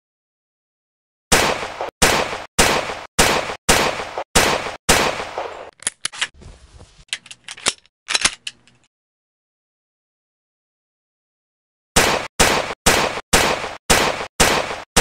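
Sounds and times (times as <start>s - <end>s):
pistol shots: 1.3s - 5.7s, 12.0s - 15.0s
metallic clicks of pistol action: 7.1s - 8.9s.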